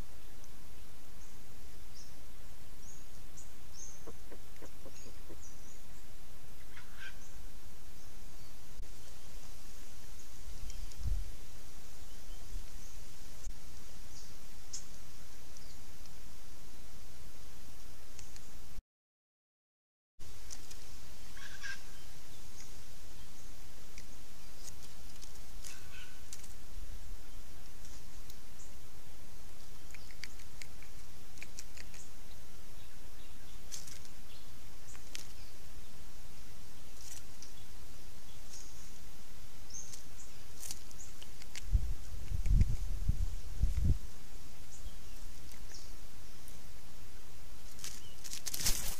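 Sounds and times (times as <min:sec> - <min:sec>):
small birds chirping: 0:00.0 - 0:18.7, 0:20.2 - 0:48.9
steady outdoor hiss: 0:00.0 - 0:18.8, 0:20.2 - 0:48.9
bird calls: 0:02.8 - 0:09.3, 0:21.2 - 0:26.6.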